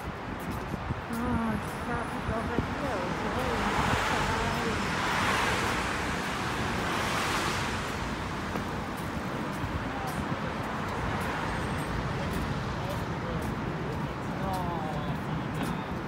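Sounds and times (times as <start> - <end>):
wind on microphone: 0.0 - 11.2
city traffic noise: 0.0 - 16.0.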